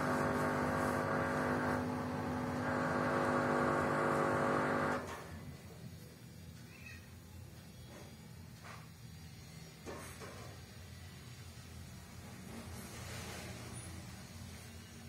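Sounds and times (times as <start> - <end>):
washing machine spinning: 0.0 - 5.1.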